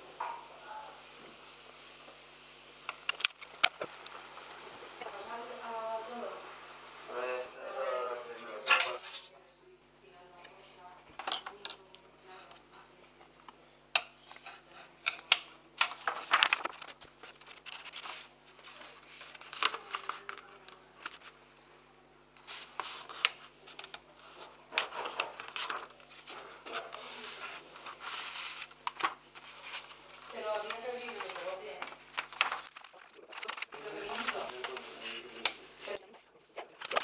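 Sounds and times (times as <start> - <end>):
paper rustling: 15.8 - 21.4, 22.4 - 35.5, 36.7 - 37.0.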